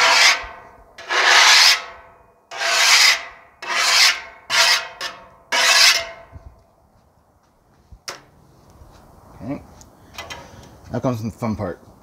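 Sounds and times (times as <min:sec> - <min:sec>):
scraper rasping across steel griddle: 0:00.0 - 0:06.3.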